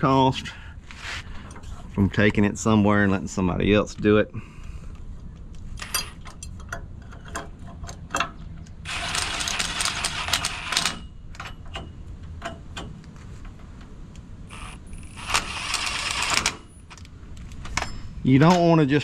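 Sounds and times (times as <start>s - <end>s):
light metal clinks and knocks: 5.8s - 8.7s, 17.5s - 18.8s
impact wrench running: 8.9s - 11.0s, 14.5s - 16.8s.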